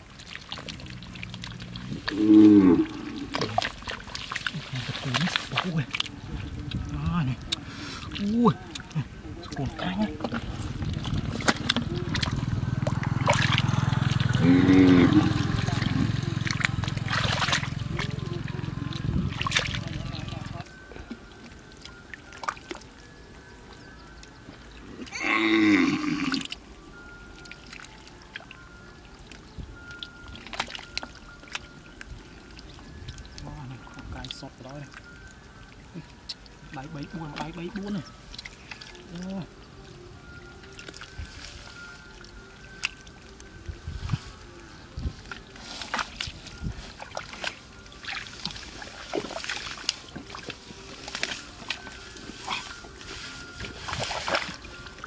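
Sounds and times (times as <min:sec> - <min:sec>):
wet grass and mud pulled up: 0:00.0 - 0:55.0
hands splashing in mud and water: 0:03.2 - 0:06.2, 0:09.6 - 0:20.6, 0:45.2 - 0:55.0.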